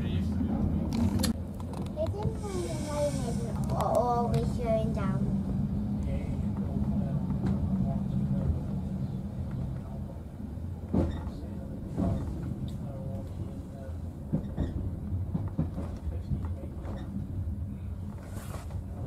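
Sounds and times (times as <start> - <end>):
train engine drone: 0.0 - 19.0
knocks and clatter: 14.3 - 17.1.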